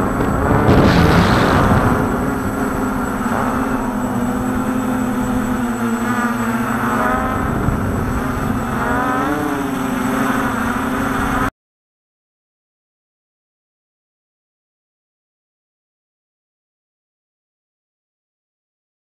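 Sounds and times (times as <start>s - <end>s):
drone propellers humming: 0.0s - 11.5s.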